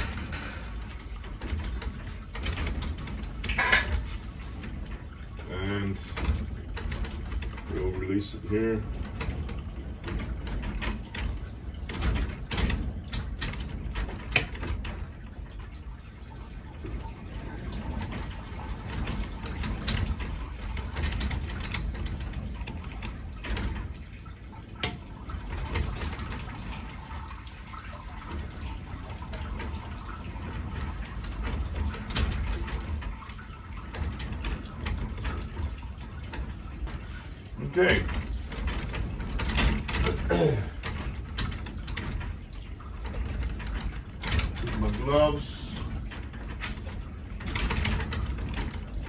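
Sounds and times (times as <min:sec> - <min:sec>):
clicks and rustles: 0:00.0 - 0:49.0.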